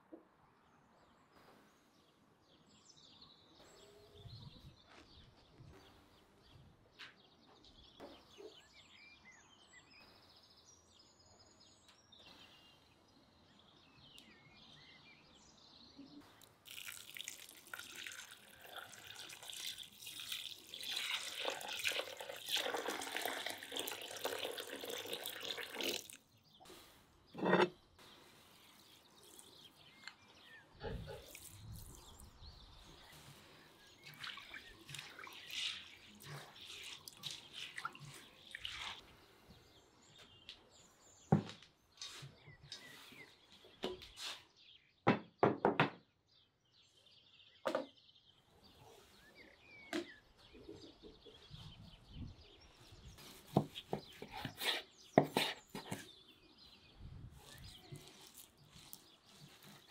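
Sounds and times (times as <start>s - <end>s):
birds chirping faintly: 0.0s - 59.9s
hands sloshing rice in water: 16.6s - 26.2s, 33.2s - 39.1s
water pouring into a metal bowl: 16.6s - 26.2s, 34.0s - 39.0s
knock: 45.1s - 46.0s.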